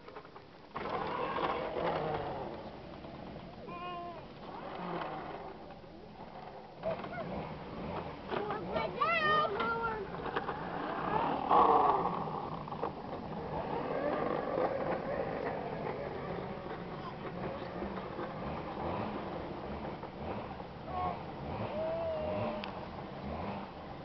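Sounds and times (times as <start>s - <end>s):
young children babbling: 3.6s - 4.3s, 20.9s - 22.7s
child shouting: 3.7s - 4.3s, 8.5s - 10.1s, 20.9s - 22.6s.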